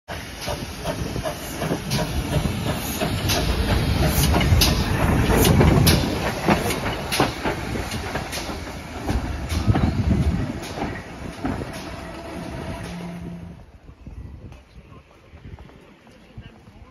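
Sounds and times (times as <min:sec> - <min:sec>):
wheels clanking over rail joints: 0:00.1 - 0:13.7
steam locomotive rolling past: 0:00.1 - 0:16.9.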